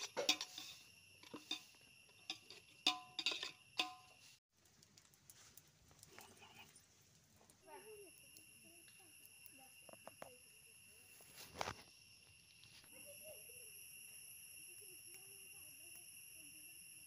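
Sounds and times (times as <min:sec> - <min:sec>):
high insect trill: 0:00.0 - 0:04.4, 0:06.2 - 0:17.0.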